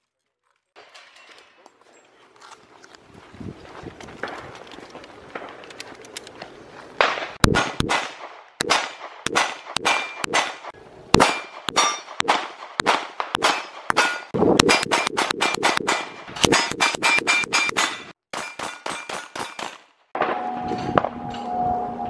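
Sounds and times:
pistol shots: 7.0s - 19.8s
steel targets ringing: 11.2s - 12.2s.

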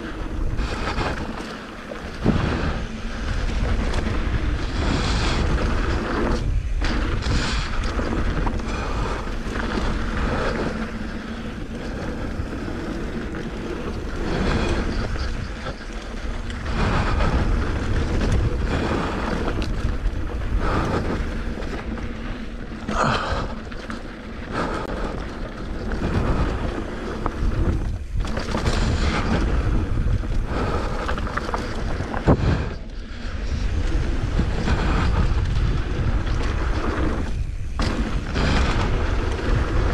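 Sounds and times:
bike rattling and knocking: 0.0s - 39.9s
tyres on loose dirt and rocks: 0.0s - 39.9s
wind rushing over microphone: 0.0s - 39.9s.

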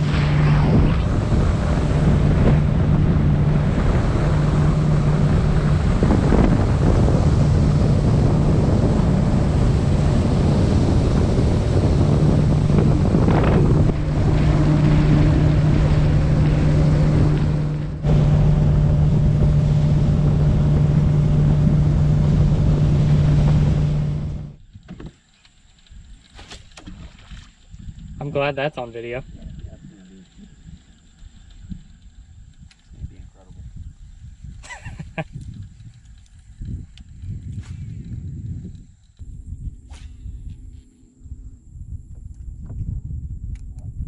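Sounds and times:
wind buffeting microphone: 0.0s - 24.9s, 25.8s - 44.0s
outboard motor running: 0.0s - 25.4s.

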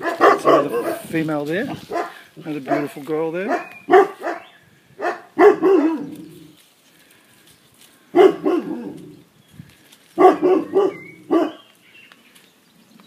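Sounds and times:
puppies barking and yapping: 0.0s - 6.6s, 8.2s - 9.2s, 10.2s - 11.8s.

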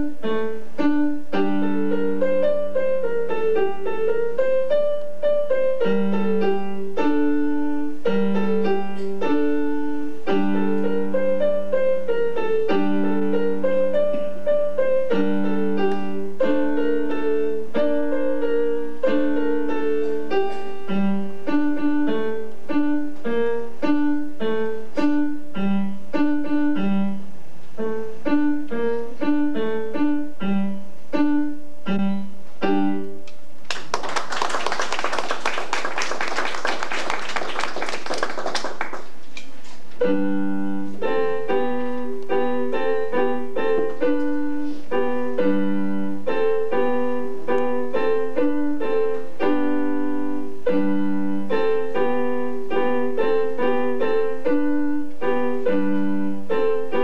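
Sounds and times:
electronic keyboard piano piece: 0.0s - 33.7s, 39.1s - 57.0s
audience applauding: 33.7s - 39.3s.

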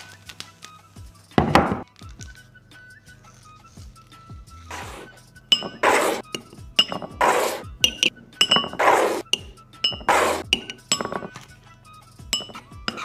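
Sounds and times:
background music with beat: 0.7s - 13.0s
glass jars clinking: 5.5s - 11.5s, 12.3s - 13.0s
metal spoon tapping on jars: 5.5s - 11.5s, 12.4s - 13.0s.

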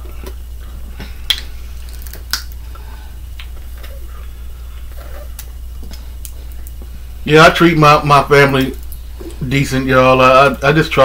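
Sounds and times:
hands peeling shellfish: 0.0s - 4.0s
steady low hum: 0.0s - 11.0s.

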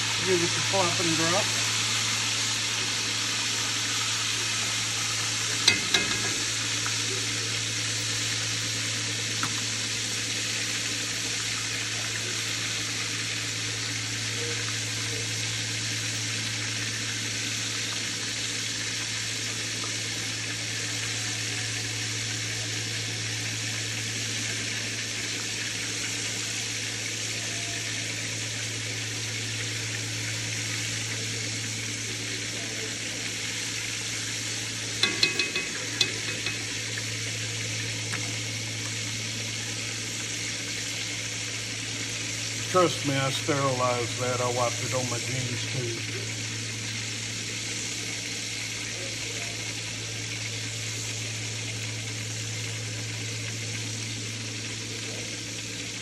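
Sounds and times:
steaks sizzling in hot oil: 0.0s - 56.0s
metal tongs knocking pot: 5.6s - 6.6s, 35.0s - 37.0s.

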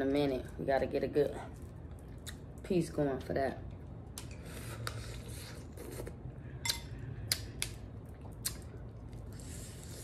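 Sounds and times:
wet squishy eating sounds: 3.6s - 10.0s.

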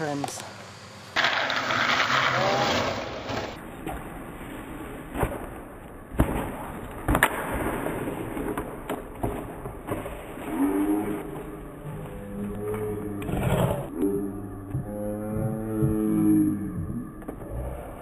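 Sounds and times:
skateboard rolling: 1.1s - 5.8s
longboard wheels scraping asphalt: 1.2s - 3.7s.

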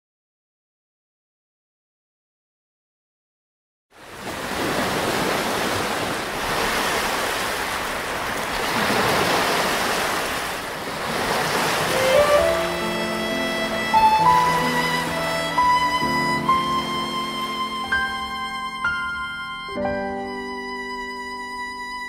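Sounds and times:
ocean surf breaking: 4.0s - 19.3s
violin notes: 11.5s - 22.0s.

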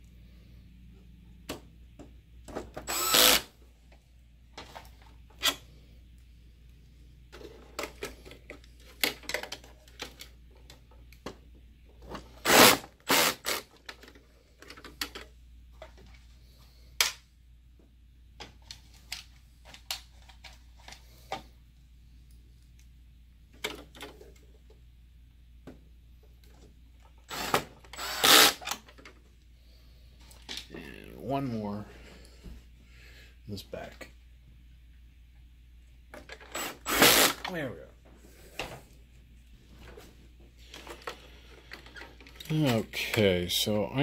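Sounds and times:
electric screwdriver driving screws: 2.8s - 3.5s, 12.4s - 13.6s, 27.3s - 28.8s, 36.5s - 37.4s.

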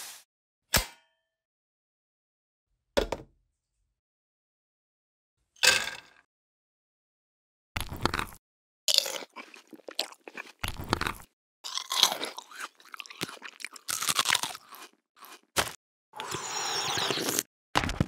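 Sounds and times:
crunching sound effects: 10.0s - 18.0s.

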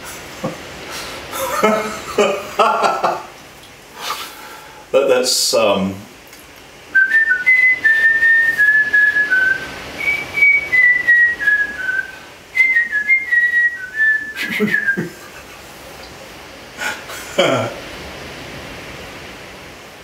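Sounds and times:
man whistling a tune: 7.0s - 15.0s.

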